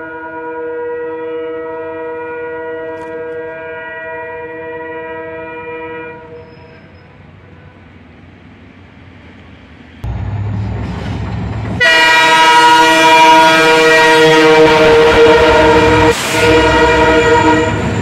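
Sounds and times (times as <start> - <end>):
train air horn: 0.0 - 8.0, 11.8 - 18.0
locomotive engine rumble: 9.2 - 18.0.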